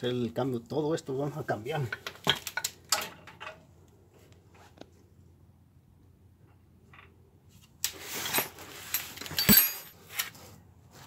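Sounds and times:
metal tools clanking: 8.2 - 10.3.

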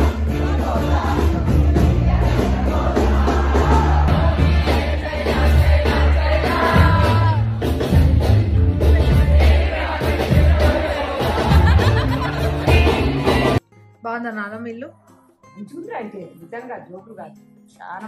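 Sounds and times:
heavy bass line: 0.0 - 13.6
live band music: 0.0 - 13.6.

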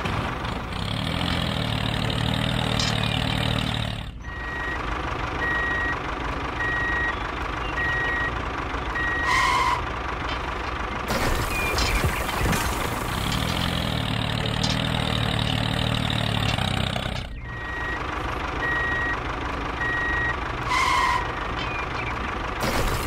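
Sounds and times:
vehicle engine running: 0.0 - 23.0
reversing alarm beeping: 4.2 - 4.8, 6.6 - 8.4, 17.4 - 19.2, 19.8 - 21.2.

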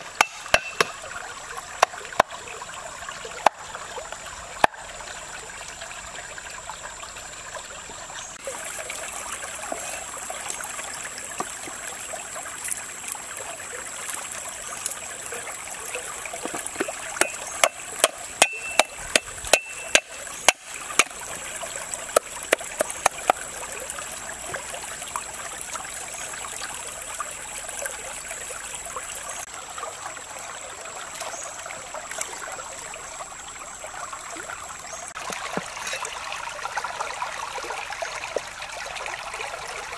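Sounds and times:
stream flowing over rocks: 0.0 - 39.9
cleaver chopping on wooden board: 0.2 - 1.0, 16.8 - 21.2.

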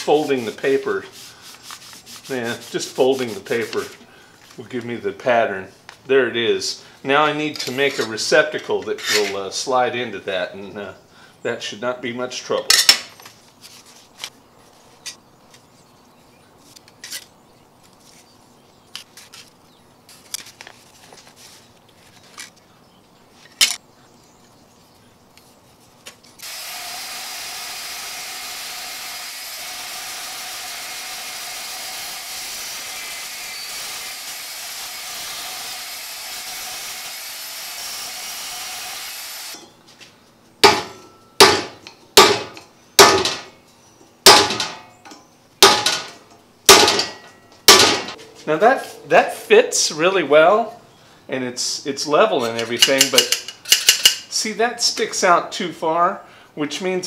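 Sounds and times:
band saw cutting sheet metal: 0.0 - 4.0, 26.4 - 39.6.

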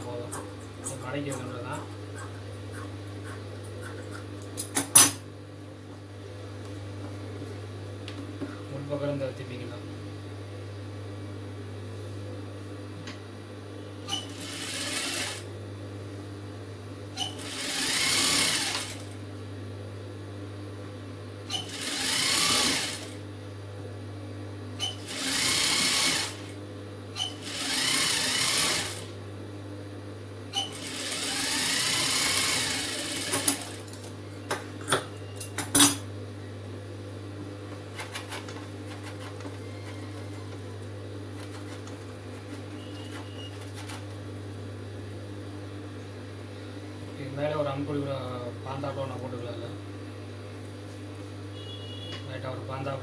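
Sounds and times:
sewing machine stitching: 14.1 - 15.4, 17.2 - 19.0, 21.5 - 23.1, 24.8 - 26.4, 27.2 - 29.1, 30.6 - 33.8.

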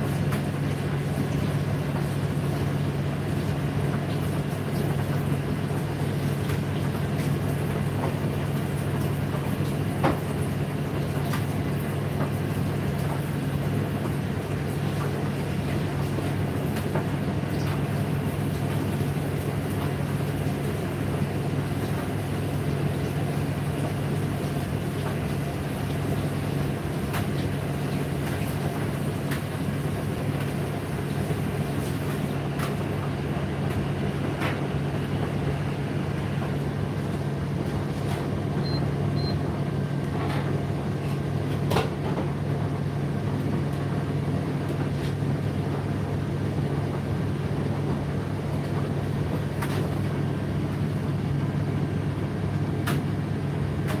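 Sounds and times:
tumble dryer humming: 0.0 - 54.0
light knocks in dryer: 10.0 - 10.3.

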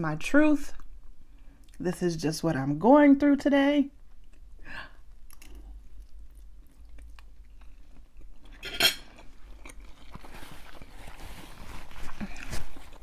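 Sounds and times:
chewing: 4.1 - 13.0.

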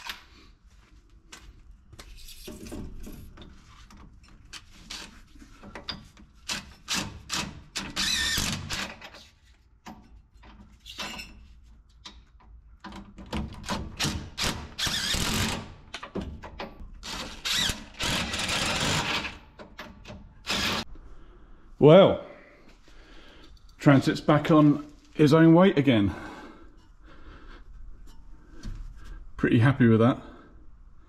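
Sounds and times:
impact wrench rattling: 13.4 - 20.9.

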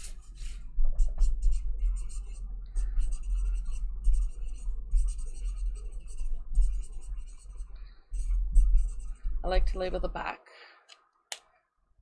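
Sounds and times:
marker writing on paper: 0.0 - 9.2
steady low hum: 0.0 - 10.9.

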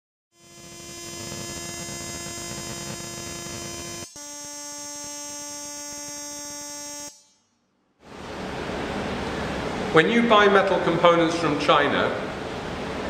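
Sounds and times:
electric spark buzz: 0.3 - 7.5.

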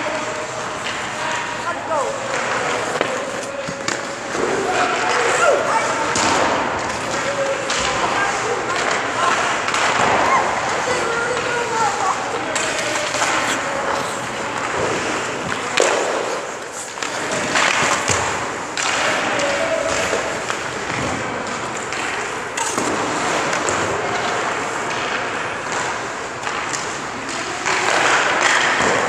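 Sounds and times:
skates scraping on ice: 0.1 - 29.0
stick and puck knocks: 12.5 - 23.9.

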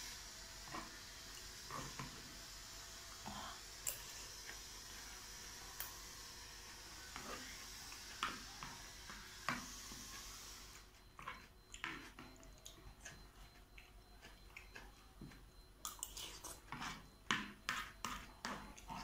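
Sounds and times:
chewing noodles: 11.1 - 17.1.

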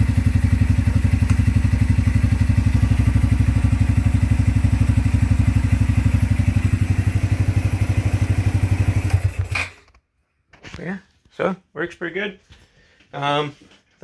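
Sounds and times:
motorcycle engine idling: 0.0 - 9.5.

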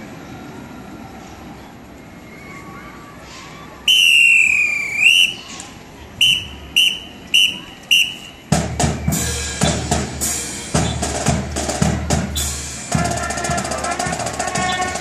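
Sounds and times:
whistle blasts: 3.9 - 5.5, 6.2 - 9.4, 12.3 - 15.0
marching band playing: 6.2 - 15.0
bass and snare drums beating: 8.4 - 15.0.

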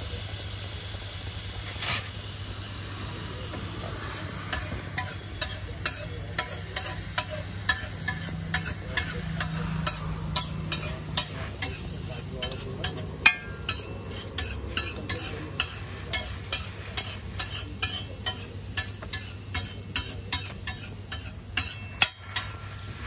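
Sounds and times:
frying sizzle on griddle: 0.0 - 23.0
brief hiss: 1.6 - 4.4
spatula clinking on steel griddle: 4.5 - 22.8.

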